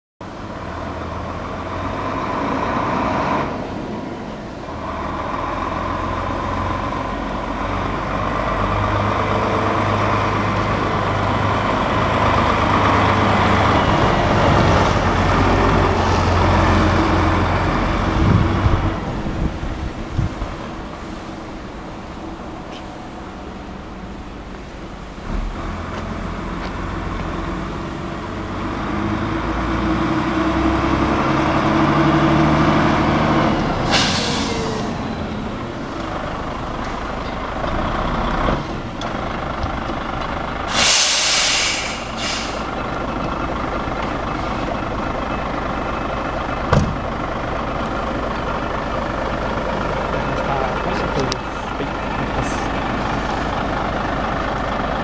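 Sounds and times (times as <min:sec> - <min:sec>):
truck diesel engine running: 0:00.2 - 0:55.0
air brakes hissing: 0:33.8 - 0:35.0, 0:40.7 - 0:42.8.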